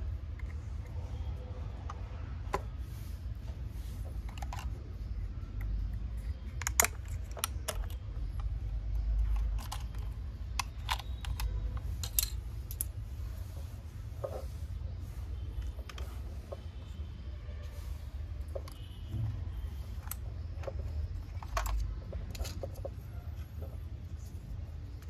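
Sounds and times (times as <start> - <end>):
low steady hum: 0.0 - 25.0
small hard objects clicking: 4.1 - 13.0, 19.6 - 23.8.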